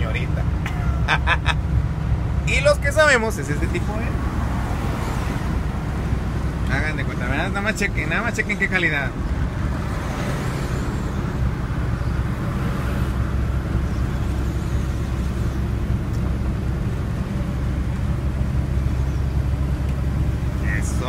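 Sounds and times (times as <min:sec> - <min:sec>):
diesel truck engine drone: 0:00.0 - 0:21.0.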